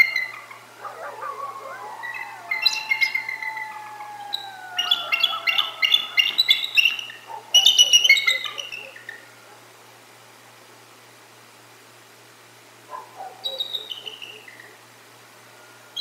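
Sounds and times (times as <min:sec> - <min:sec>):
eagles chortling: 0:00.0 - 0:09.3
coyotes howling: 0:00.0 - 0:09.7.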